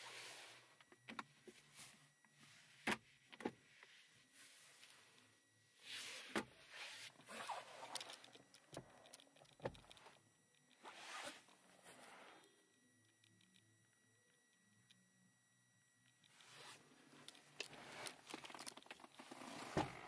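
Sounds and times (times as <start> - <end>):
rustling against upholstery: 10.8 - 12.3, 16.3 - 20.0.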